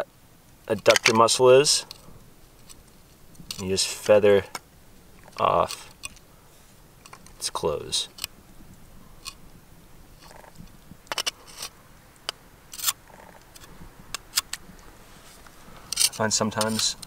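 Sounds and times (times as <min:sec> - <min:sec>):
knife scraping scallop shell: 0:09.1 - 0:09.4, 0:10.2 - 0:14.6, 0:15.2 - 0:17.0.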